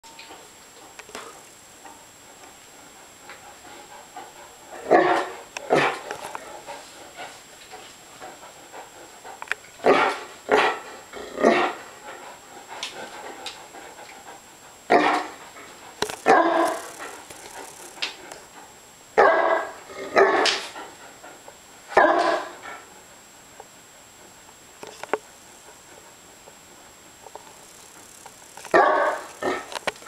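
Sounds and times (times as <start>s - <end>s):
large dogs barking: 4.8s - 6.1s, 9.8s - 10.8s, 11.4s - 11.8s, 14.9s - 15.4s, 16.2s - 17.0s, 19.2s - 20.6s, 21.9s - 22.6s, 28.7s - 29.7s.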